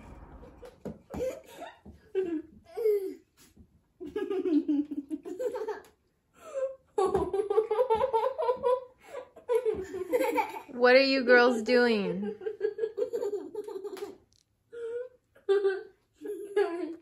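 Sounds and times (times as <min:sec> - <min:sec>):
children laughing: 0:04.0 - 0:10.8, 0:12.2 - 0:14.3, 0:15.4 - 0:17.0.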